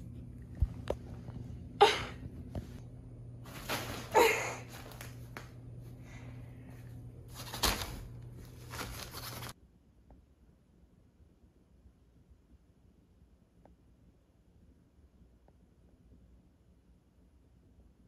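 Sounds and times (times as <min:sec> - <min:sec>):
low steady hum: 0:00.0 - 0:18.0
nylon tunnel rustling and crinkling: 0:03.4 - 0:05.5, 0:07.2 - 0:09.6.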